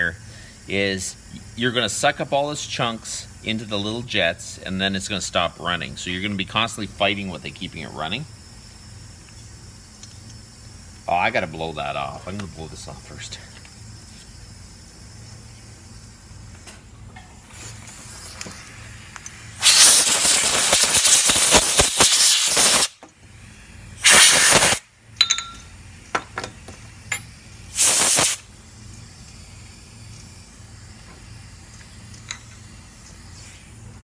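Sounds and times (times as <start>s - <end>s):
compressed air blasts: 12.8s - 24.9s, 25.8s - 34.0s.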